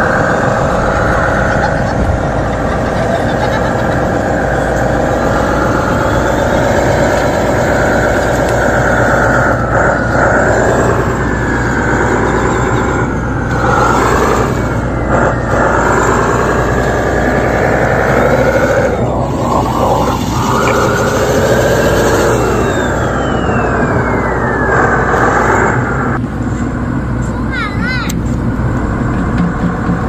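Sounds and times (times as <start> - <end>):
excavator engine and hydraulics: 0.0 - 30.0.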